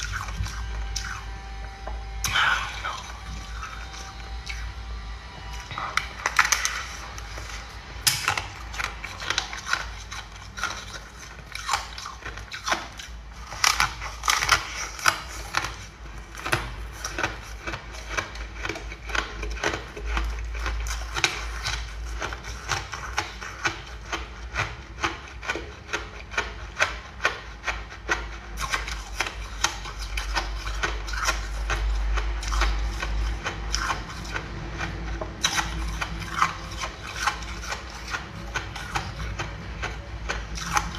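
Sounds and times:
ice crunching being chewed: 0:00.0 - 0:40.9.

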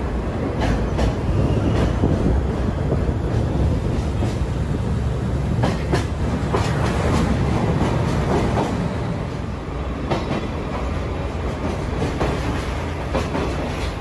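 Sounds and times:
train car rumbling along track: 0:00.0 - 0:14.0
wheels clacking over rail joints: 0:05.5 - 0:08.9, 0:11.5 - 0:14.0.

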